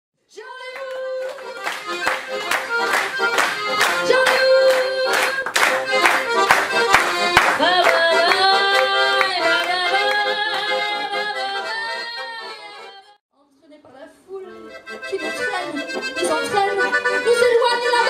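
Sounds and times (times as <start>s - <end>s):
piano accordion playing: 0.8s - 13.2s, 14.4s - 18.0s
woman singing wordless notes: 4.0s - 5.4s, 7.6s - 13.1s.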